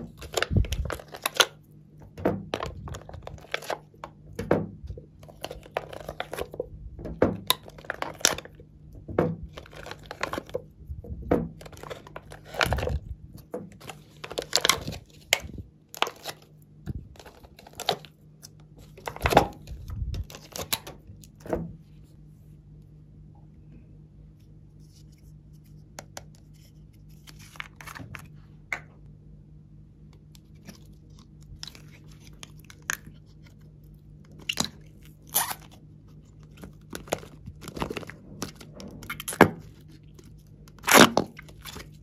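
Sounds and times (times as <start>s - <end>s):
plastic tray crinkling: 0.0s - 1.6s, 2.3s - 4.1s, 5.2s - 6.7s, 7.3s - 8.6s, 9.4s - 10.7s, 11.4s - 16.5s, 17.1s - 18.1s, 34.3s - 42.0s.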